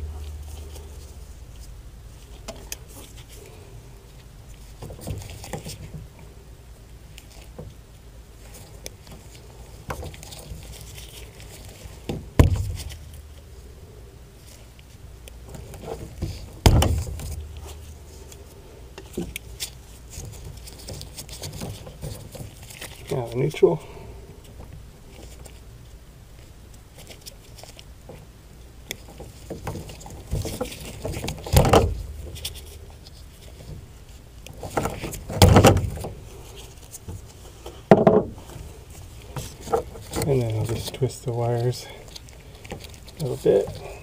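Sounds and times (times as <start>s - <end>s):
loud thumps: 12.1s - 13.0s, 16.2s - 17.7s.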